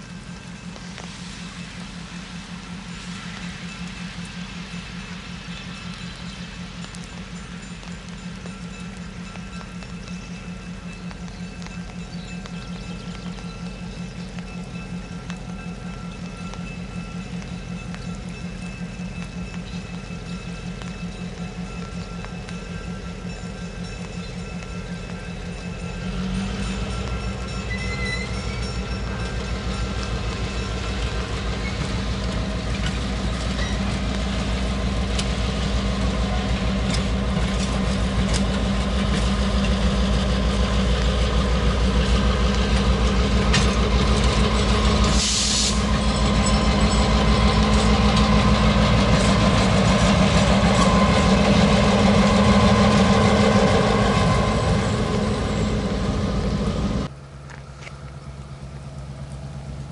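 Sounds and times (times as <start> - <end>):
rail clatter: 0.0 - 57.1
diesel engine drone: 0.0 - 59.9
brief hiss: 45.2 - 45.8.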